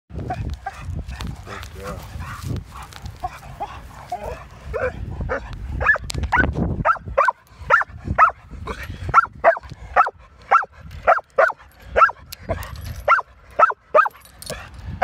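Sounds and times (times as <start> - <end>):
dog yelping and barking: 3.2 - 8.4, 9.1 - 14.7.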